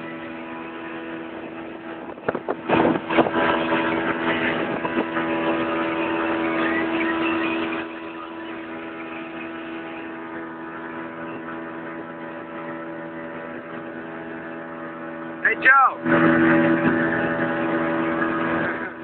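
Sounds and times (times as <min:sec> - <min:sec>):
motorboat engine running: 0:00.0 - 0:19.0.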